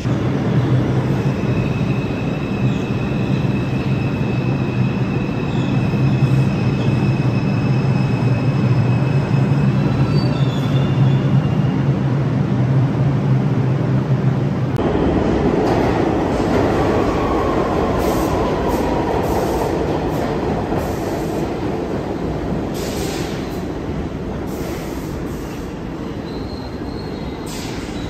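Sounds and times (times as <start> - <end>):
train wheels rumbling on rail: 0.0 - 28.0
high-pitched wheel squeal: 26.2 - 28.0.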